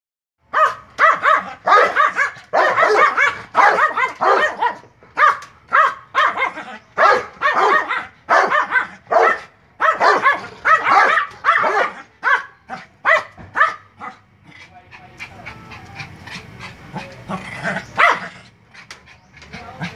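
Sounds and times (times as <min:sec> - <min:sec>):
small dog barking: 0:00.5 - 0:14.2, 0:17.8 - 0:18.4.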